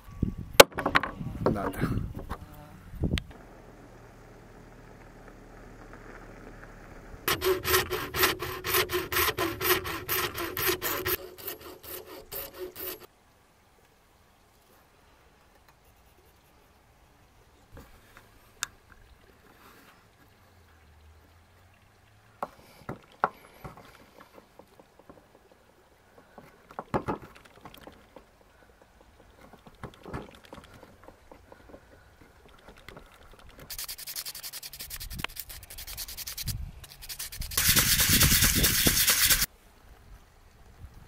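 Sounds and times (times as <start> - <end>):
sandpaper rubbing on wood: 7.3 - 13.1, 33.7 - 39.5
hand tools tapping wood: 22.4 - 25.4, 26.2 - 33.0.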